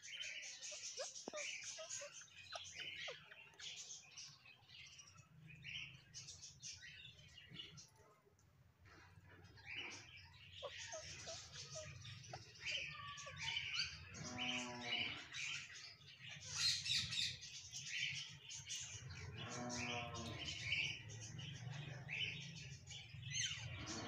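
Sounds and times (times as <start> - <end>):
parakeets chirping and squawking: 0.0 - 8.1, 8.8 - 24.0.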